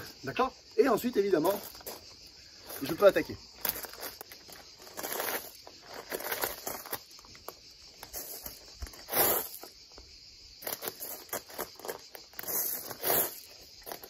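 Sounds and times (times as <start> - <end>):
shoes crunching on gravel: 2.7 - 9.6.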